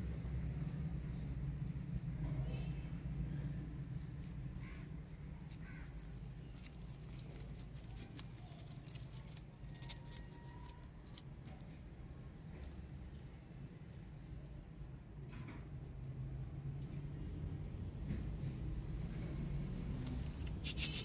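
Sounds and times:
leaves and plants rustling: 2.8s - 11.8s.

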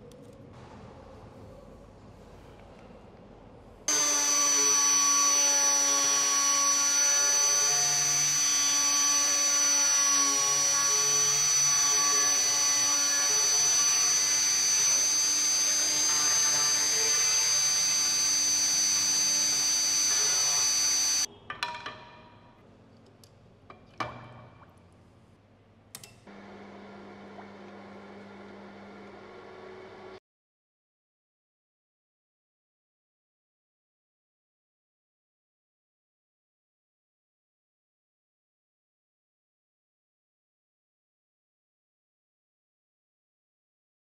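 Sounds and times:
rotary tool whining: 3.9s - 21.3s.

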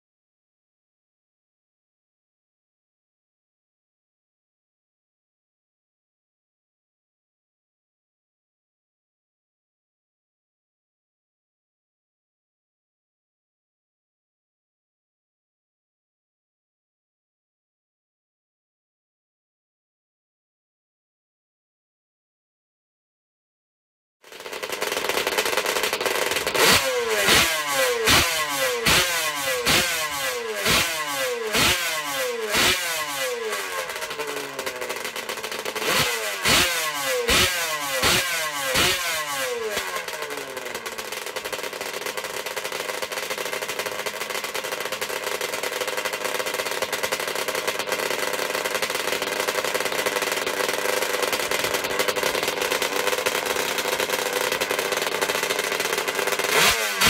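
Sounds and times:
two-stroke engine revving and idling: 24.2s - 57.0s.

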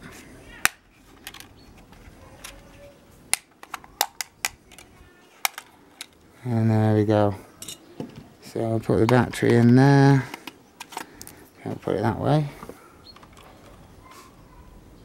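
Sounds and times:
hard plastic parts handled: 0.6s - 6.2s, 7.6s - 13.9s.

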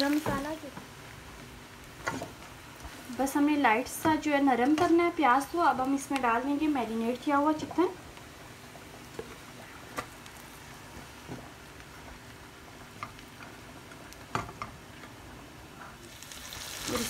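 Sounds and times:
chicken sizzling in hot oil: 0.0s - 3.8s, 16.0s - 17.0s.

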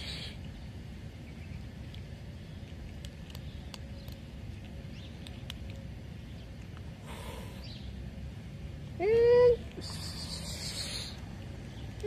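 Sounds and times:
low outdoor rumble: 0.0s - 12.0s
kittens crunching dry food: 1.6s - 7.1s.

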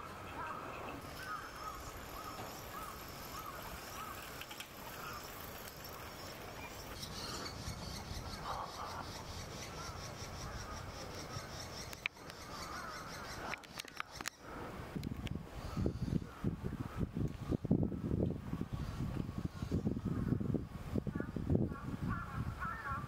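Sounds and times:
wild birds calling: 0.0s - 14.8s, 15.6s - 17.0s
high ticking bird notes: 0.1s - 14.4s
sharp clicks: 11.8s - 12.4s.

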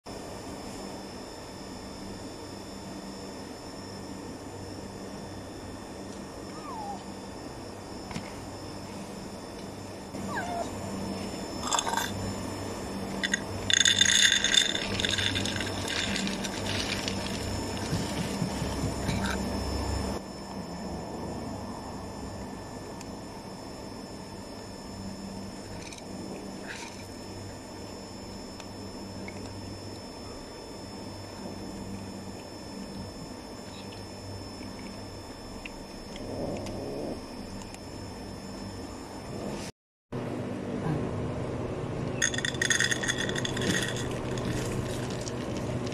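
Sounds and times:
steady low hum: 0.1s - 45.9s
pet food rattling into bowl: 11.6s - 12.2s, 13.2s - 19.4s, 42.2s - 45.9s.

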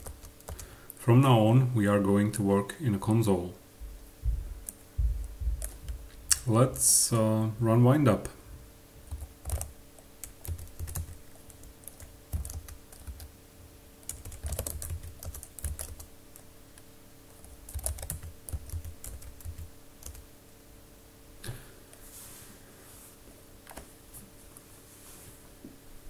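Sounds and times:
faint steady hum: 0.0s - 26.0s
keyboard typing: 5.5s - 6.0s, 9.1s - 13.3s, 14.0s - 16.1s, 17.3s - 20.2s.

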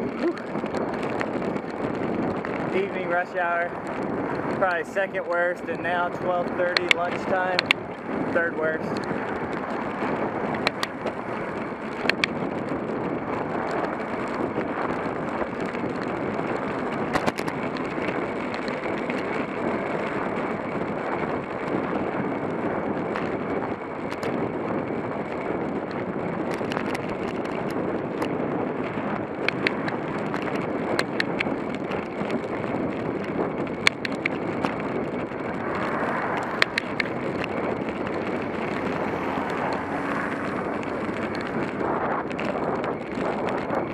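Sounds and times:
bicycle tyre noise on road: 0.0s - 43.9s
wind rush on microphone: 0.0s - 43.9s
sharp clicks: 10.5s - 11.1s, 29.4s - 31.7s, 35.8s - 38.2s
car passing: 35.2s - 42.3s.

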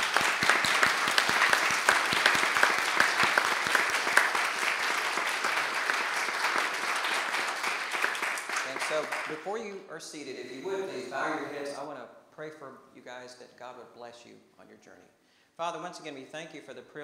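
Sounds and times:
congregation applauding: 0.0s - 9.6s, 10.4s - 11.8s.

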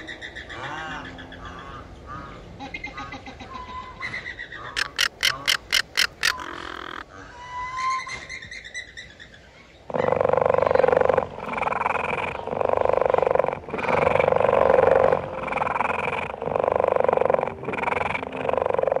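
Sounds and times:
rasping animal call: 4.6s - 8.0s.

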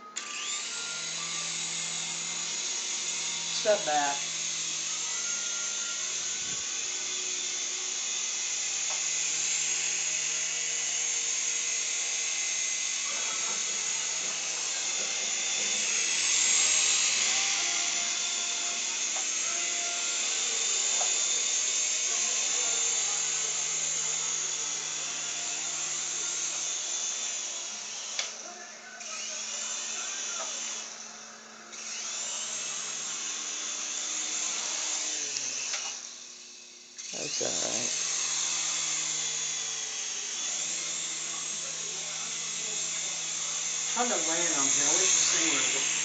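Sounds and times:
toy helicopter rotor whine: 0.0s - 46.0s.

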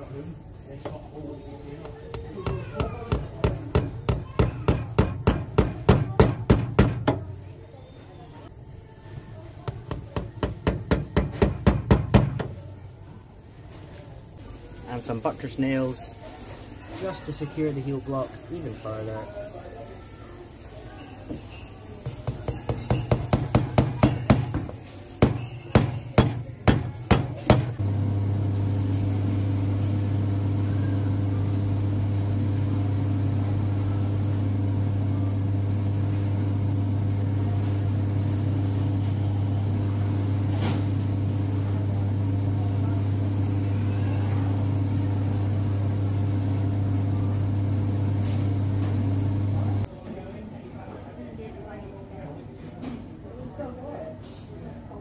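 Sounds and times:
buffing machine humming: 27.8s - 49.9s.

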